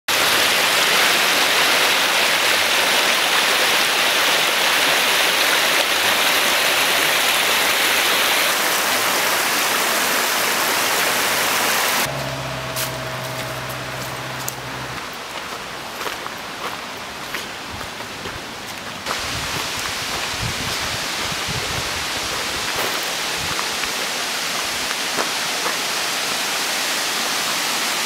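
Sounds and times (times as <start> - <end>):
creek water rushing over rocks: 0.1 - 12.1, 14.3 - 28.0
low steady hum: 12.1 - 16.3.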